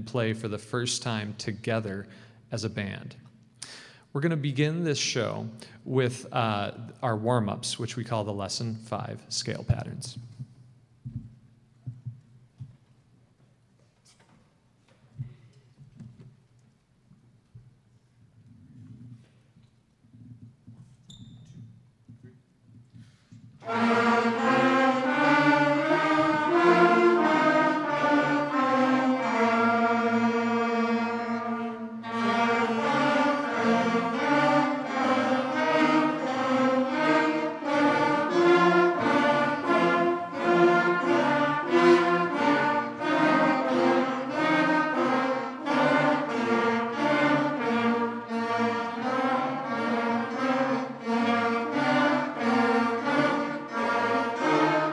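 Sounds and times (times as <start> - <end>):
concert band playing scales: 23.6 - 54.9.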